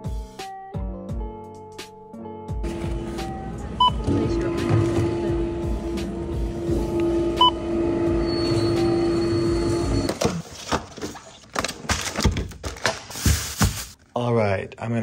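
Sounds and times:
low hum: 2.6 - 10.1
barcode scanner beep: 3.8 - 4.4, 7.4 - 7.6.

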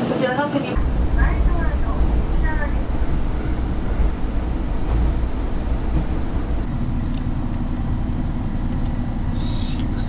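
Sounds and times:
diesel railcar rumble: 0.0 - 10.0.

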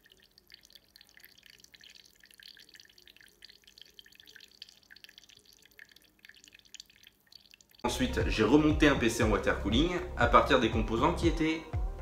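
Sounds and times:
liquid dripping: 0.0 - 7.9.

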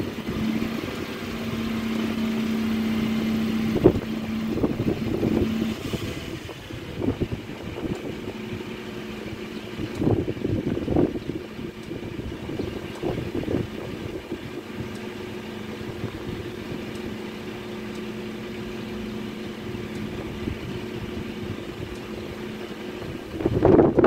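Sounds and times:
low mechanical hum: 0.0 - 24.0
faint ticks: 17.9 - 18.2.

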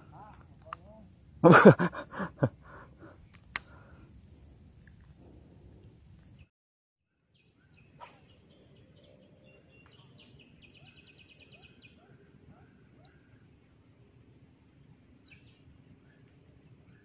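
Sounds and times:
insects: 0.0 - 5.4, 7.1 - 17.0
bird chirping and trilling: 7.3 - 12.1.

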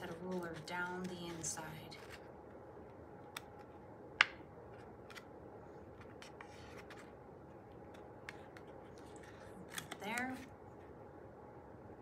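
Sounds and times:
paper crinkling: 0.0 - 2.3, 5.9 - 10.5.

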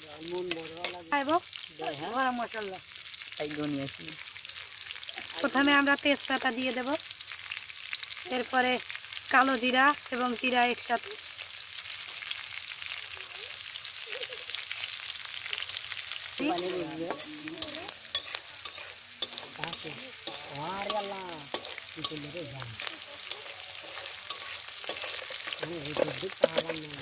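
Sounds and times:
spices sizzling in hot oil: 0.0 - 27.0
metal spatula scraping pan: 16.5 - 27.0.

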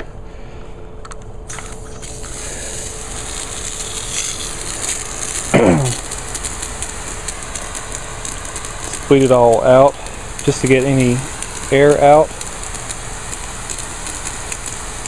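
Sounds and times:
water hissing from nozzle: 1.5 - 15.0
short voice-like sound: 5.6 - 6.0.

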